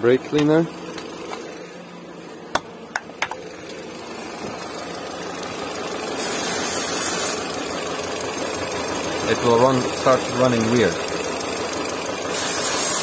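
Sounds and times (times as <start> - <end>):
car engine idling: 0.0 - 13.0
aerosol spray hiss: 6.2 - 7.4, 12.3 - 13.0.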